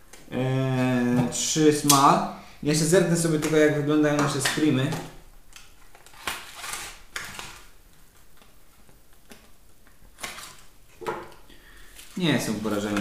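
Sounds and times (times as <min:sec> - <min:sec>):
packaging rustling: 0:04.2 - 0:10.8, 0:11.8 - 0:13.0
knife scraping packaging: 0:06.0 - 0:07.6.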